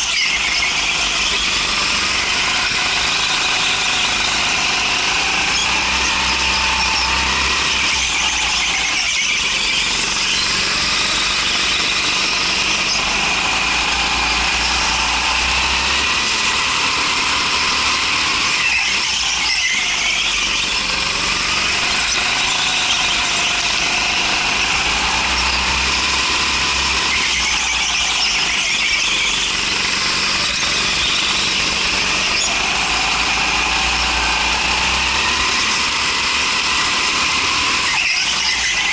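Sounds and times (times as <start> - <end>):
go-kart engine running: 0.0 - 38.9
tyres squealing on concrete: 0.0 - 38.9.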